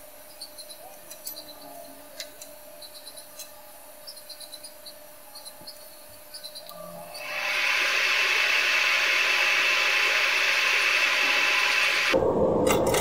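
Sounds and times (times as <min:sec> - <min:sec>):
faint steady hum: 0:00.0 - 0:13.0
flux crackling under soldering iron: 0:05.6 - 0:13.0.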